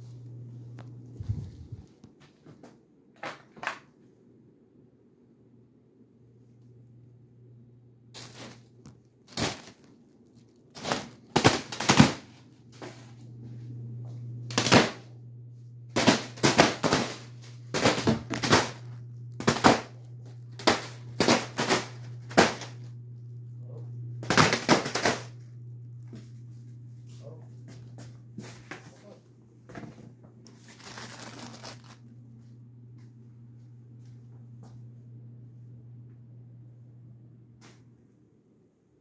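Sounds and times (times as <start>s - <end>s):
steady low hum: 0.0s - 3.1s, 4.2s - 39.0s
fan blades slapping foil balloon: 0.8s - 2.0s, 8.1s - 13.3s, 14.4s - 15.1s, 15.9s - 23.0s, 24.2s - 27.3s, 27.9s - 32.5s.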